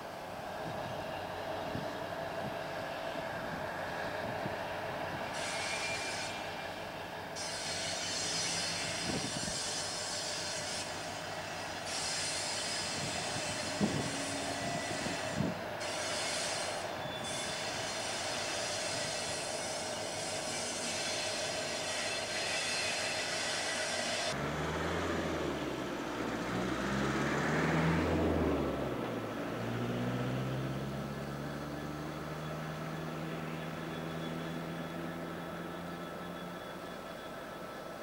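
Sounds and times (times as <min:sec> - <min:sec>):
diesel locomotive engine hum: 0:00.0 - 0:38.0
wheel flange squeal: 0:05.3 - 0:06.6, 0:07.4 - 0:24.4, 0:31.4 - 0:38.0.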